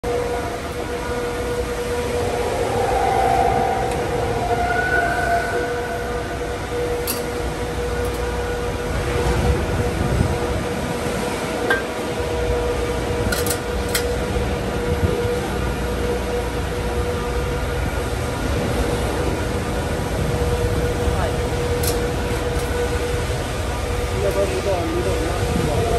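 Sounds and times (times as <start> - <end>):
machine hum and whine: 0.0 - 25.9.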